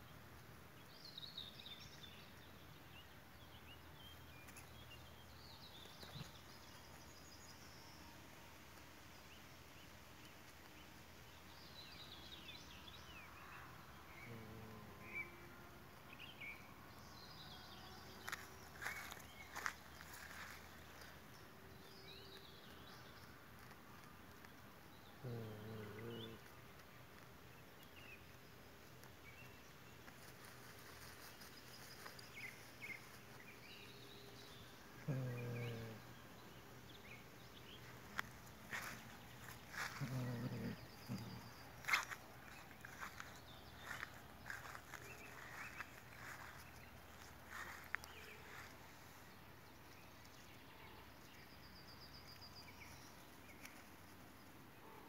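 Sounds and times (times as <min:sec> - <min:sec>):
low drawn-out animal call: 0:25.2 - 0:26.5, 0:35.0 - 0:36.2.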